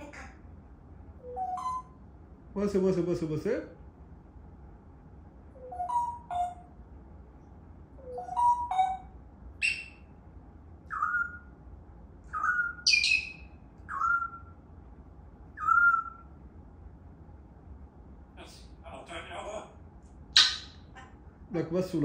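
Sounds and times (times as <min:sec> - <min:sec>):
parrot whistling: 0:01.2 - 0:02.0, 0:05.5 - 0:06.7, 0:08.0 - 0:10.1, 0:10.9 - 0:11.6, 0:12.3 - 0:14.6, 0:15.5 - 0:16.4, 0:20.3 - 0:21.0.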